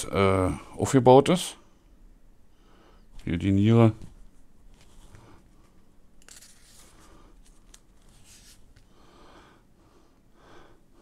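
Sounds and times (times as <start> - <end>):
paper pages rustling: 6.2 - 8.8.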